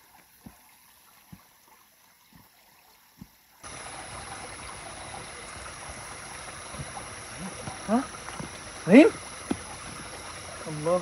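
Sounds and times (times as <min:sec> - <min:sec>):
flowing water rushing: 0:00.0 - 0:11.0
soft thuds: 0:06.7 - 0:08.7, 0:09.4 - 0:10.2.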